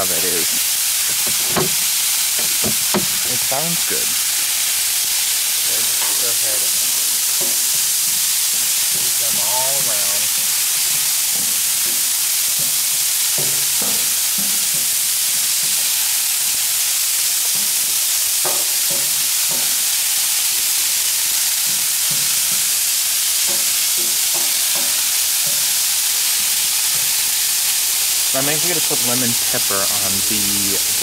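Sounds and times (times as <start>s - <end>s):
vegetables sizzling on a griddle: 0.0s - 31.0s
tongs clacking and scraping: 0.4s - 3.4s.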